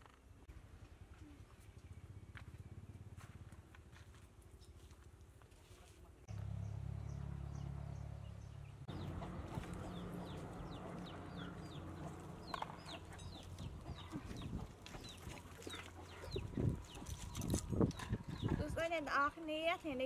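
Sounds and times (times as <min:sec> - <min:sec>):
chickens clucking: 0:08.9 - 0:18.6.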